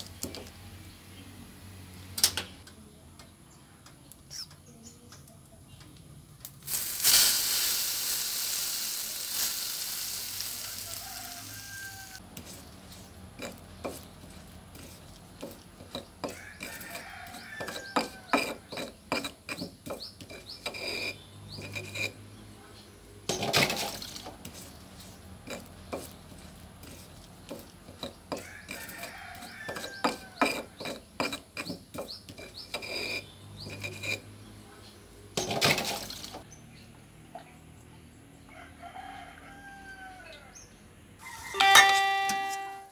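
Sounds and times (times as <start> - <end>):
sizzle: 6.4 - 12.2
stone pestle scraping and knocking: 12.3 - 22.2, 23.3 - 34.3.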